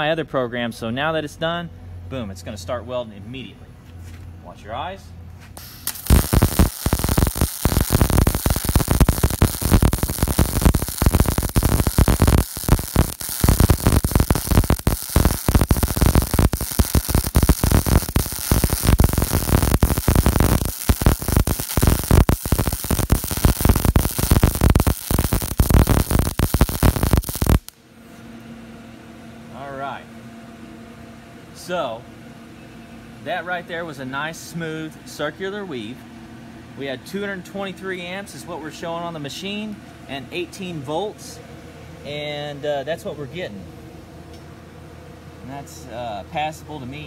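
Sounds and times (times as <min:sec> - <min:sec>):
welding arc crackling hiss: 0:05.6 - 0:27.8.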